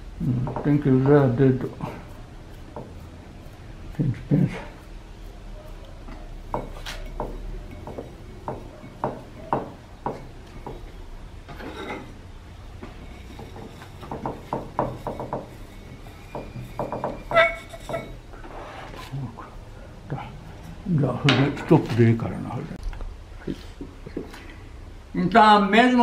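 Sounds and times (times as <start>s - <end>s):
rub on clay: 0.8s - 9.4s, 12.9s - 19.2s.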